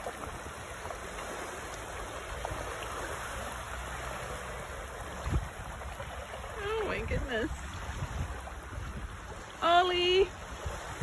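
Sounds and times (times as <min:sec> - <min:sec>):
water washing over sandy shore: 0:00.0 - 0:11.0.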